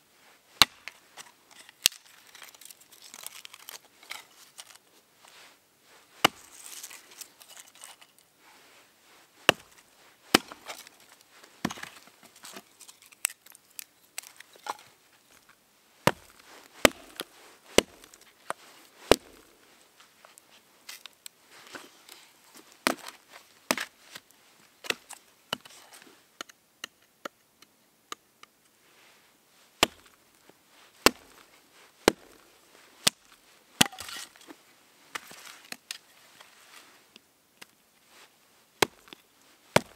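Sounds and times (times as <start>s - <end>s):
hatchet chopping branch: 0.6s - 0.9s, 9.5s - 10.8s, 16.1s - 17.2s, 17.8s - 18.2s, 29.8s - 30.2s, 31.0s - 31.4s, 32.1s - 32.4s, 33.8s - 34.2s, 38.8s - 39.1s.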